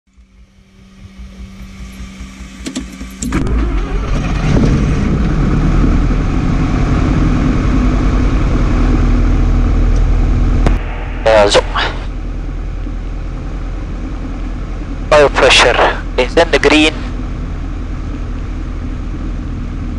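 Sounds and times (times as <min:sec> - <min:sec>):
aircraft engine running: 0:00.1 - 0:19.9
starter cranking engine: 0:02.0 - 0:05.4.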